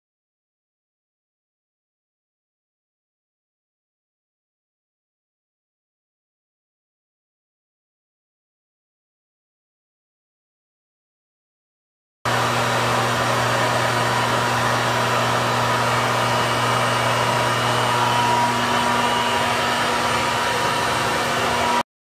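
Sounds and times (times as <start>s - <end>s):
vacuum motor running: 12.3s - 21.8s.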